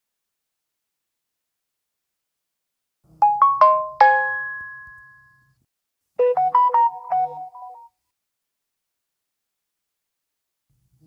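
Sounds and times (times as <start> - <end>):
bright notification tone run: 3.3 - 5.4
rising chime notification tone: 3.4 - 5.4.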